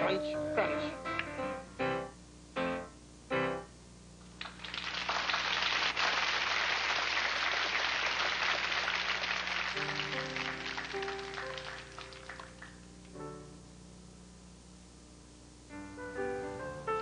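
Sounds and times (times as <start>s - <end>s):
music: 0.0s - 3.8s, 9.6s - 13.9s, 15.6s - 17.0s
audience applauding: 4.4s - 12.9s.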